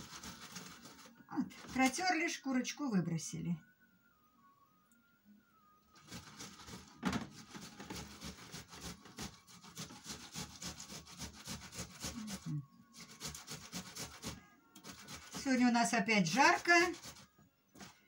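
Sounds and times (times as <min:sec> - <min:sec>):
tomato rasping on metal grater: 0:00.0 - 0:02.0, 0:06.0 - 0:18.0.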